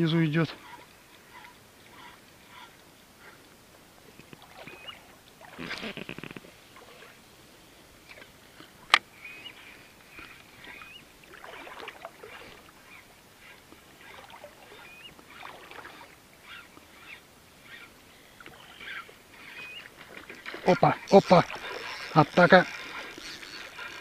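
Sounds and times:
short bird calls: 4.4 - 6.1, 9.2 - 11.1, 12.3 - 19.9.

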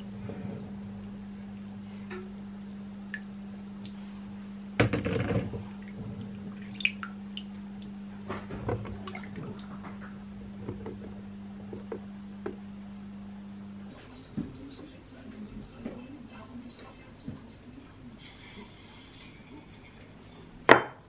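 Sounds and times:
steady low hum: 0.0 - 21.0
water dripping: 2.1 - 4.1, 5.8 - 8.0, 8.9 - 10.2
water splashing: 5.8 - 8.0, 8.8 - 10.2
small knocks: 8.3 - 12.6.

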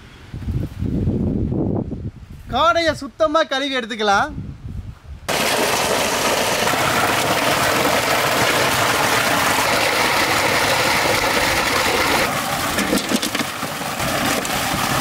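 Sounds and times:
water gushing from a pipe: 5.3 - 15.0
water splashing in a wok: 5.3 - 15.0.

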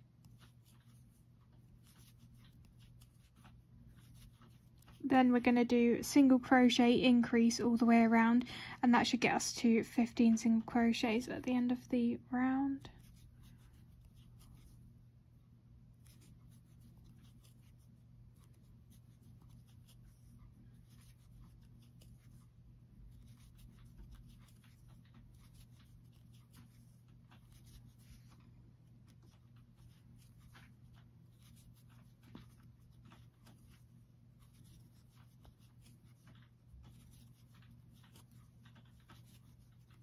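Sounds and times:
low steady hum: 0.0 - 40.0
crochet hook pulling yarn: 0.2 - 5.0, 12.8 - 14.8, 15.9 - 40.0.

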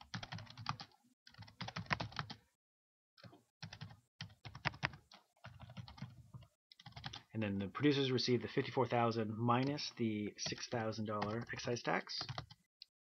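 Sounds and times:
typing on computer keyboard: 0.0 - 2.4, 3.2 - 7.3, 11.2 - 12.6.

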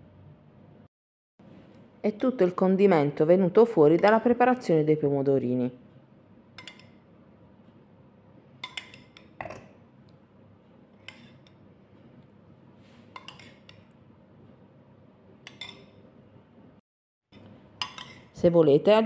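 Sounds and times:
faint room hum: 0.0 - 16.8
metal spoon clinking on bowl: 6.6 - 7.0, 8.6 - 9.8, 11.0 - 11.6, 13.1 - 14.0, 15.4 - 16.0, 17.4 - 18.4.

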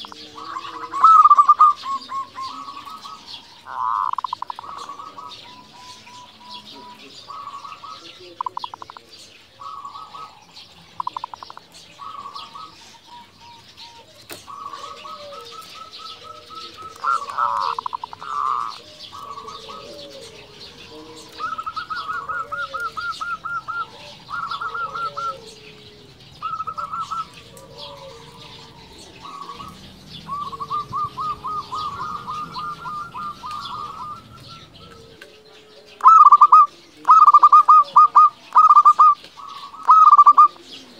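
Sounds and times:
doves trilling coos: 0.0 - 40.9
soft low cooing: 11.9 - 38.5.

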